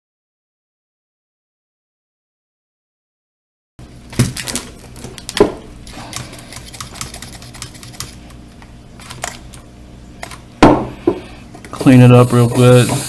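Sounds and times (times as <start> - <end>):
low steady hum: 3.8 - 13.0.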